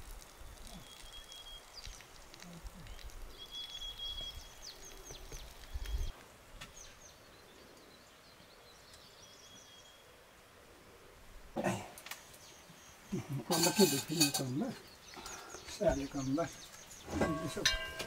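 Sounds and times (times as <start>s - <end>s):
birds chirping: 0.2s - 10.4s, 11.6s - 18.0s
thin steady bird whistle: 0.4s - 2.1s, 2.8s - 6.1s.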